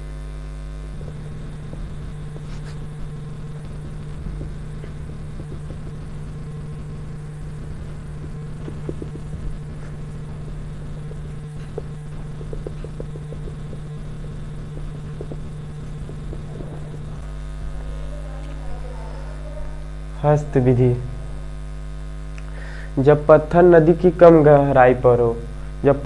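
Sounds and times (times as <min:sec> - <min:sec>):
low electrical hum: 0:00.0 - 0:26.0
marker writing on whiteboard: 0:02.3 - 0:02.9, 0:11.4 - 0:14.0.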